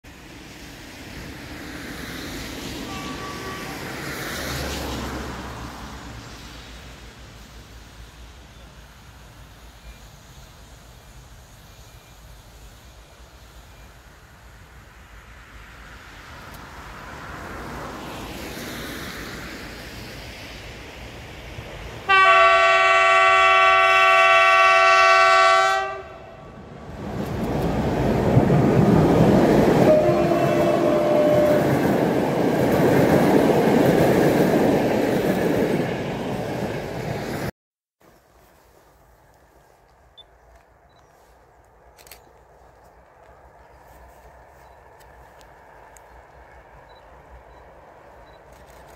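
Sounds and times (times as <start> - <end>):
locomotive horn blast: 2.8 - 4.0, 22.1 - 26.6, 29.8 - 31.9
vehicle passing by: 3.7 - 6.7
locomotive rumble: 21.5 - 37.5.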